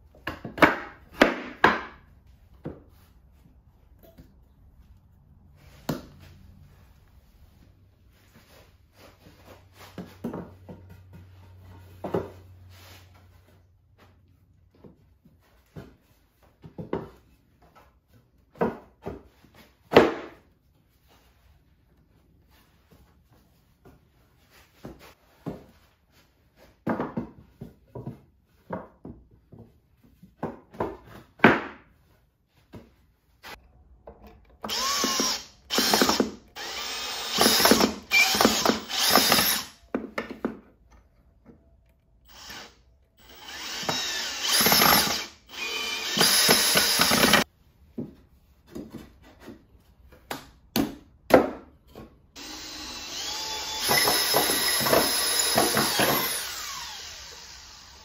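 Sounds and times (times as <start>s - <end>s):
cordless drill driving screws: 34.7s - 39.8s, 42.3s - 47.4s, 52.4s - 58.0s.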